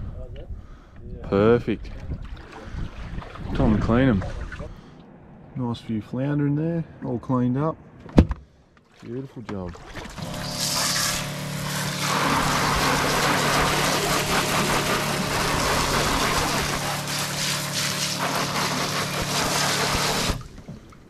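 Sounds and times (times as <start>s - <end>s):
pump humming: 9.8s - 21.0s
water spraying onto deck: 9.9s - 20.9s.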